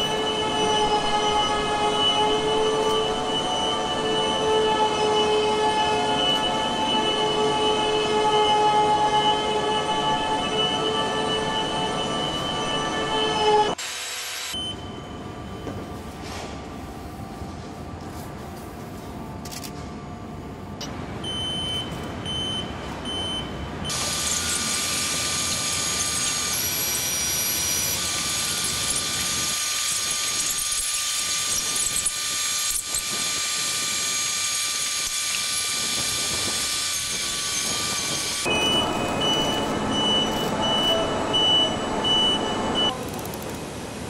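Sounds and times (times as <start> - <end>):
steady whining tones: 0.0 - 13.8, 23.9 - 44.0
loud machinery hiss: 23.9 - 42.9
repeating high beep: 38.5 - 42.9.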